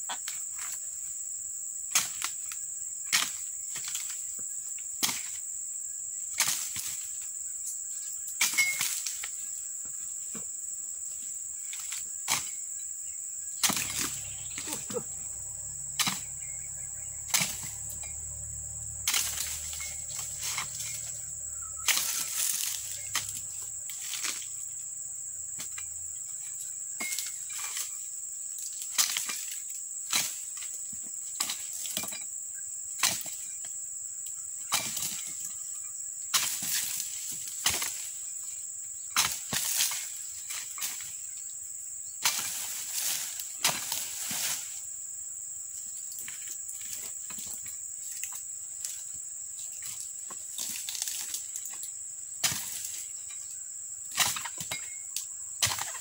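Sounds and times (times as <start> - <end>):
high insect drone: 0.0 - 56.0
chisel chopping palm fronds: 5.0 - 5.4, 6.4 - 7.1, 13.6 - 24.5, 28.9 - 30.8, 33.0 - 33.6, 34.7 - 35.4, 36.3 - 38.1, 39.2 - 41.1, 42.2 - 44.8, 52.4 - 53.1, 54.1 - 55.0, 55.6 - 56.0
fronds rustling: 13.6 - 24.9, 42.2 - 45.0, 45.8 - 53.6.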